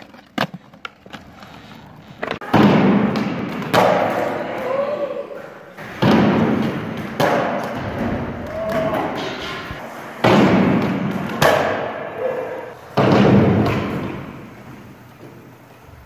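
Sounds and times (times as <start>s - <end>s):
skateboard slapping wooden floor: 0.0s - 4.4s.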